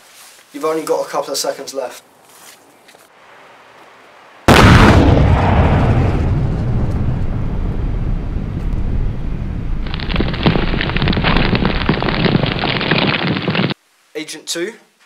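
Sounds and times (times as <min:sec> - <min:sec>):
burning flames crackling: 0:04.5 - 0:13.8
explosion rumble: 0:04.5 - 0:13.8.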